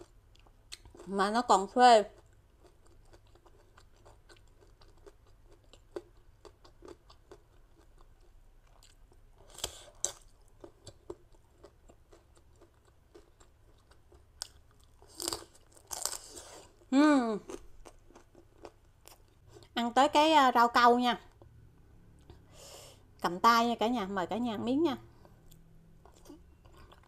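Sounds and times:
chewing crunchy food: 0.0 - 1.2, 2.0 - 19.8, 25.2 - 27.0
rice cracker crunching: 10.0 - 16.4.

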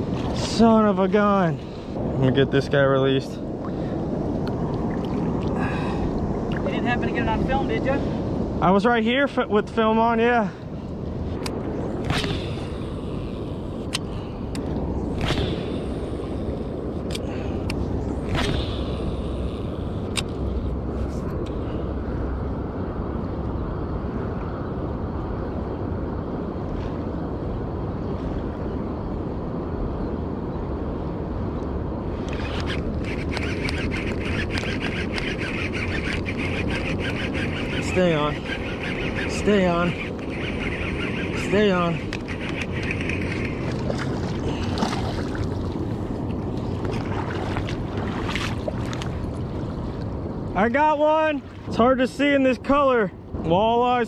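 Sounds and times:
wind on microphone: 0.0 - 52.6
fishing reel clicking: 32.3 - 43.6
river water rushing: 42.4 - 50.0.

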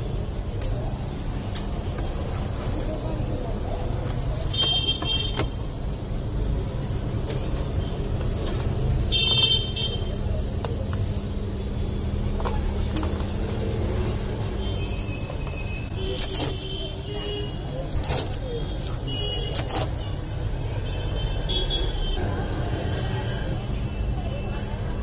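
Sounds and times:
street traffic rumble: 0.0 - 25.0.

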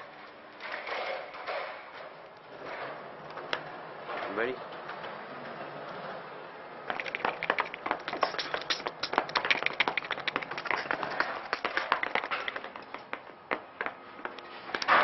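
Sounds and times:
sharp claps: 6.9 - 15.0.

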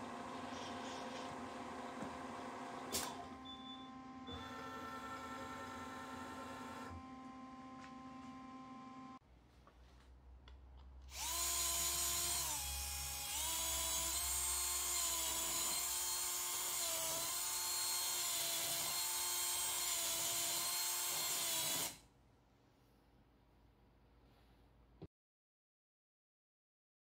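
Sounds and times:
cordless drill whining: 11.1 - 22.0.

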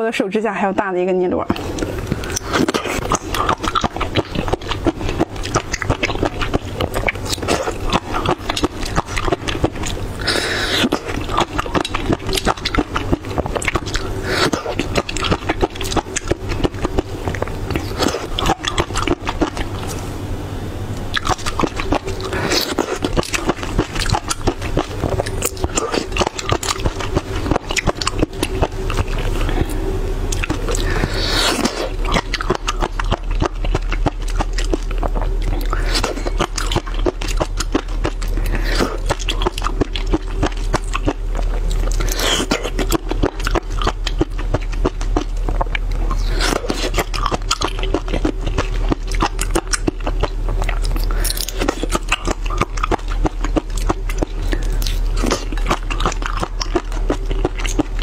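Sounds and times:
crunching snail shells: 21.2 - 29.7, 30.4 - 58.0.

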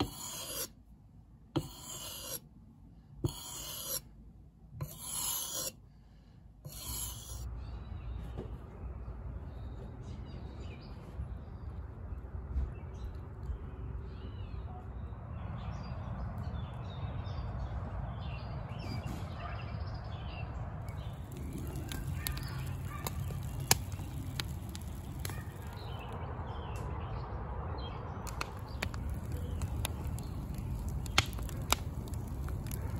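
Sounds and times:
wood fire crackling: 20.9 - 26.2, 28.2 - 32.9.

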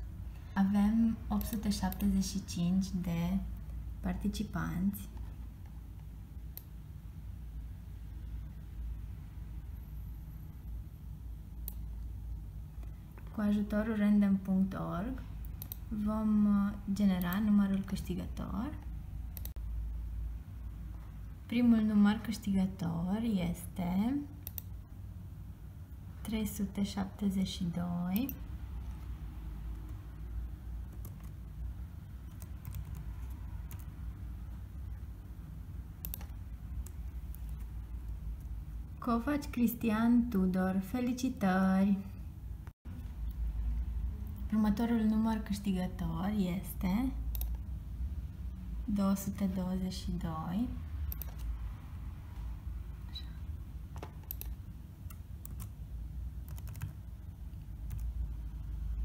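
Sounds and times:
low steady rumble: 0.0 - 59.0
steady low hum: 0.0 - 59.0
laptop keys clicking: 36.0 - 37.6, 51.1 - 51.5, 53.9 - 55.8, 56.4 - 57.0.

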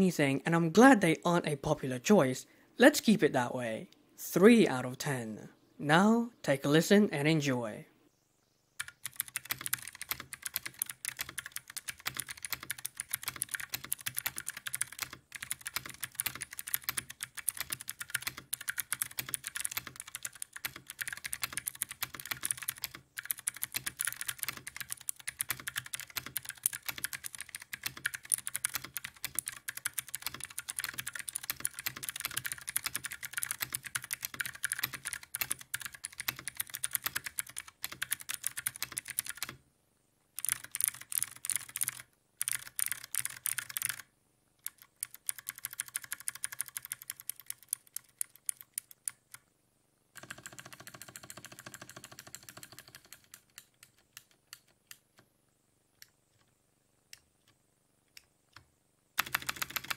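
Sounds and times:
clicky mechanical keyboard typing: 8.8 - 39.6, 40.4 - 49.4, 50.2 - 55.2, 57.2 - 59.9.

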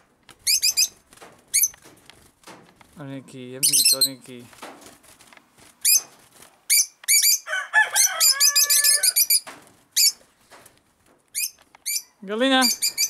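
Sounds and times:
birds chirping shrilly: 0.4 - 1.8, 3.6 - 4.3, 5.8 - 10.2, 11.3 - 13.0
rooster crowing: 7.3 - 9.4.

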